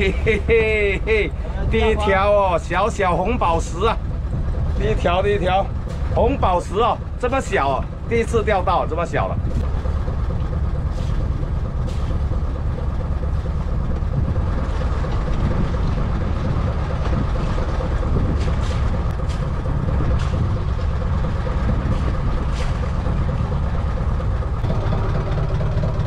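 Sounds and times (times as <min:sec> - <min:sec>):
boat engine rumbling: 0:00.0 - 0:26.0.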